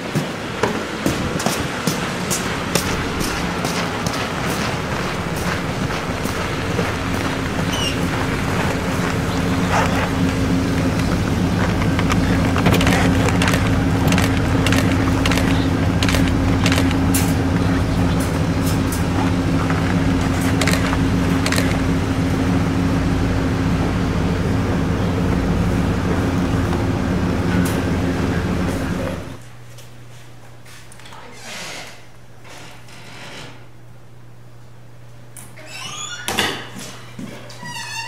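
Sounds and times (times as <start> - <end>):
vehicle engine running: 1.3 - 29.5
sharp clicks and rattles: 2.4 - 22.1.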